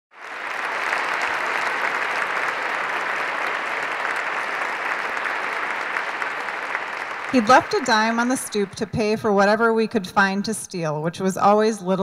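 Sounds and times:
audience applause: 0.1 - 9.5.

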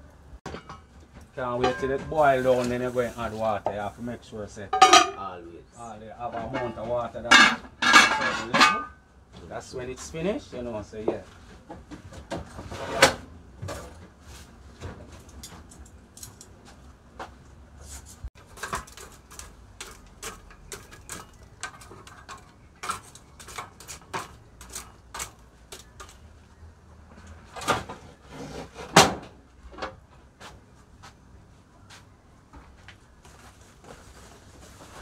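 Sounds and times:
metal pots and utensils clanking: 0.5 - 2.9, 4.7 - 5.3, 6.2 - 9.0, 18.4 - 26.2.

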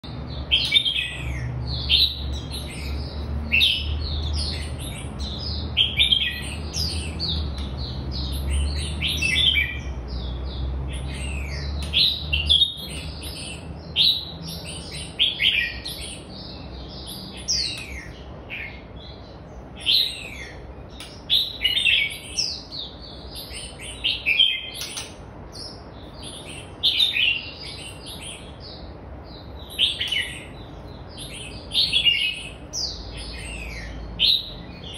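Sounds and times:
bird singing whistled notes: 0.4 - 18.8.

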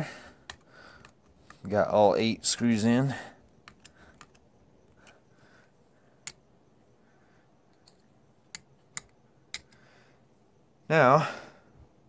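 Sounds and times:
hand tool clicks and taps: 0.4 - 1.7, 3.6 - 5.1, 7.7 - 9.8.

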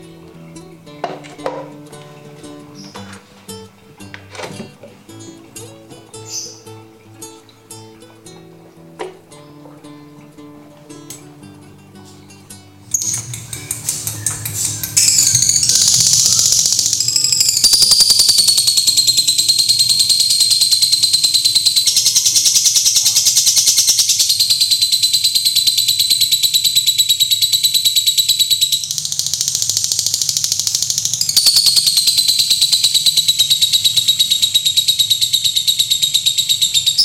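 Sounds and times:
bird chattering trill: 5.1 - 7.9, 12.9 - 37.0.

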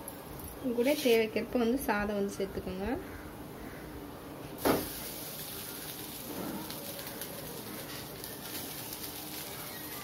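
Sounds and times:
hot oil sizzling: 4.6 - 10.0.

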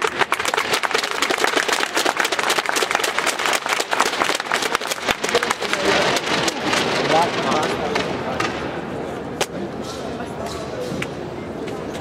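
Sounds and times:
crowd clapping: 0.0 - 8.1
murmur of voices: 0.0 - 12.0.

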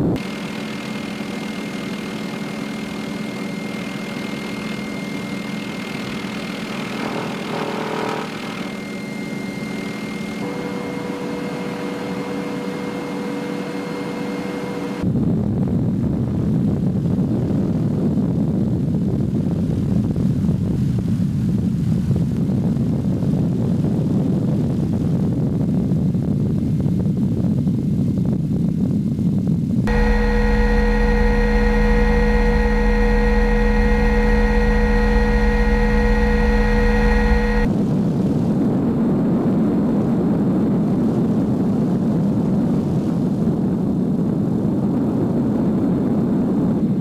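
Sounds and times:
helicopter engine whine and hum: 0.0 - 15.1, 29.9 - 37.9
helicopter rotor rumble: 0.0 - 15.2, 29.9 - 40.2.

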